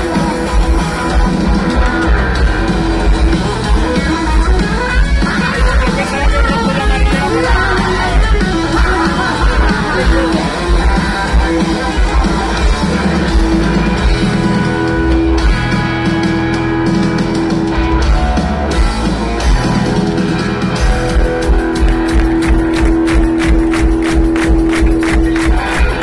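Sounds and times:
punk rock band playing live: 0.0s - 26.0s.

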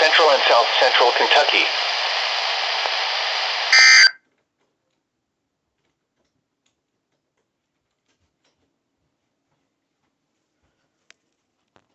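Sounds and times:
radio static hiss: 0.0s - 4.2s
digital data tones screech: 3.7s - 4.2s.

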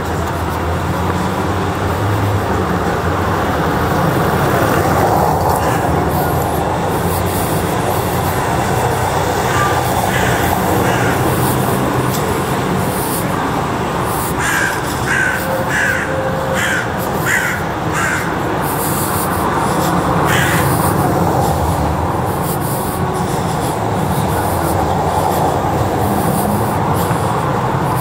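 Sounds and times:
crow cawing: 5.4s - 12.2s, 14.1s - 21.1s.

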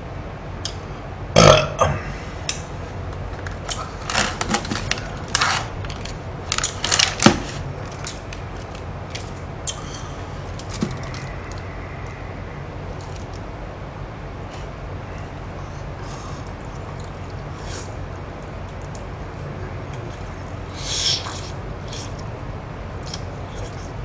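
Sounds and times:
person burping: 1.4s - 2.2s
plastic film crackling: 3.7s - 9.4s.

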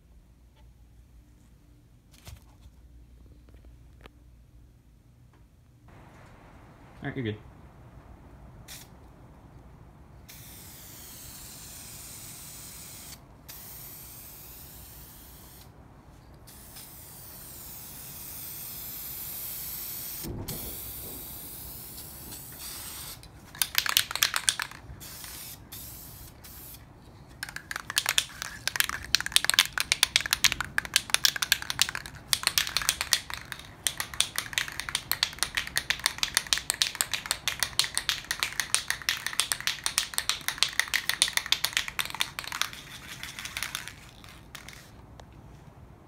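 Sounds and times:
spray can rattling when shaken: 8.7s - 8.9s, 10.3s - 15.7s, 16.5s - 45.0s
spray paint can hissing: 8.7s - 8.9s, 10.3s - 15.7s, 16.5s - 45.0s.

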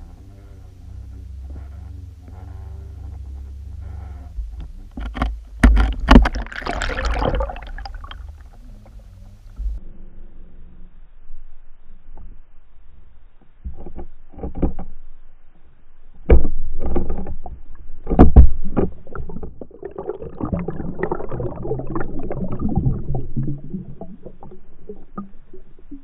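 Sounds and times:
low underwater churning: 0.0s - 9.8s, 16.7s - 26.0s
underwater knocks: 4.5s - 9.8s, 16.3s - 26.0s
water rushing over camera: 5.1s - 9.8s, 18.4s - 26.0s.

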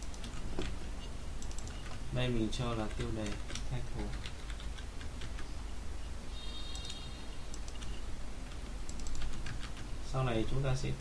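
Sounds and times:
computer keyboard typing: 0.0s - 2.0s, 2.7s - 5.5s, 6.7s - 9.9s.

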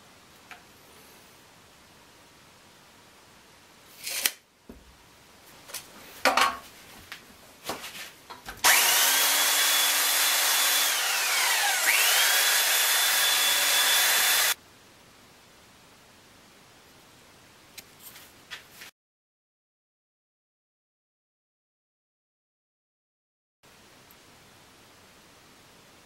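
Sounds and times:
belt sander running on wood: 8.6s - 14.6s.

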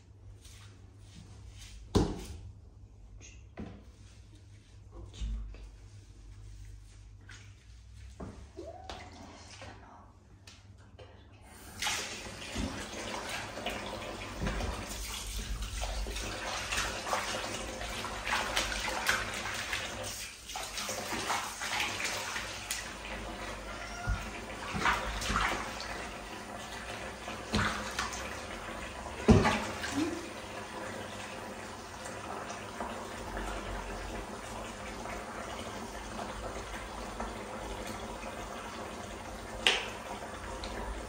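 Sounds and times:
tap water pouring into bath: 11.5s - 41.0s
water splashing: 11.7s - 30.6s.

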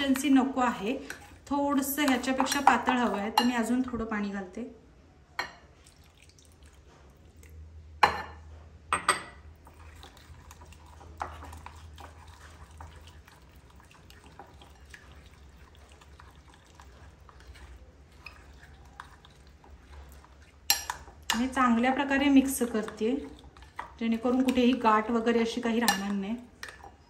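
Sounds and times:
whisk sloshing thick batter: 0.0s - 3.4s, 9.5s - 27.0s.

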